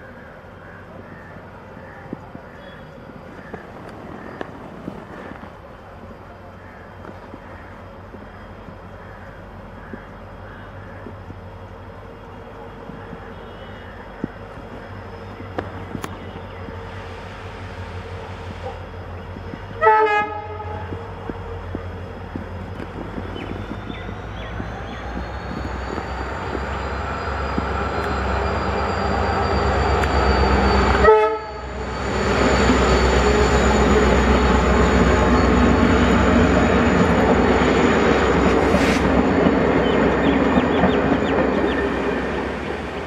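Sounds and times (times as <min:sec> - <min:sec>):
diesel locomotive engine rumble: 0:00.0 - 0:43.0
train wheel noise: 0:00.0 - 0:43.0
train horn blasts: 0:19.8 - 0:21.0, 0:30.8 - 0:31.8.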